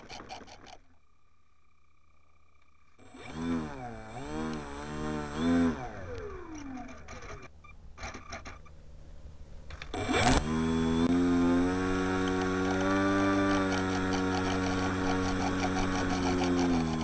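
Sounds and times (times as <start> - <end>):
electric motor and propeller whirring: 0.0 - 1.0, 3.0 - 8.7, 9.7 - 17.0
clicks: 6.0 - 8.7.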